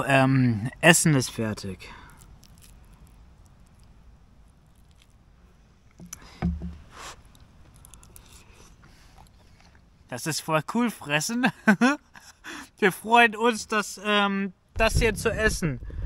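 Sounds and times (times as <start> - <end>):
chewing: 2.0 - 5.3, 7.0 - 10.1
low thump: 6.4 - 6.8.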